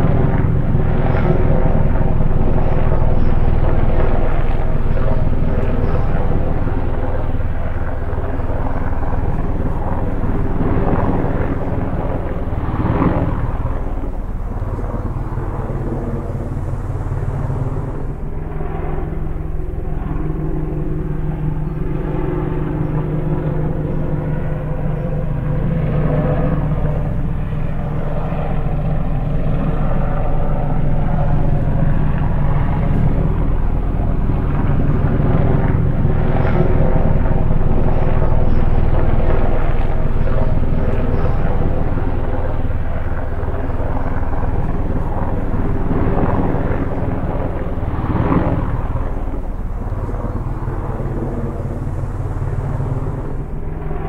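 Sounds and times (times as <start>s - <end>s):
drone propellers humming: 0.0s - 54.0s.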